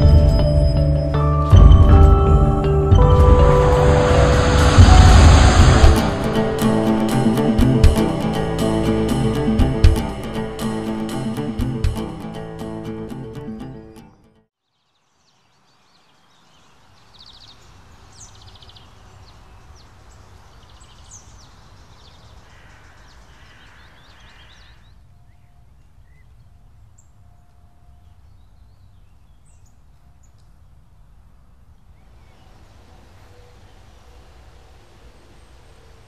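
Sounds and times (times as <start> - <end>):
low steady rumble: 1.5 - 10.5
songbirds chirping and trilling: 14.6 - 30.8.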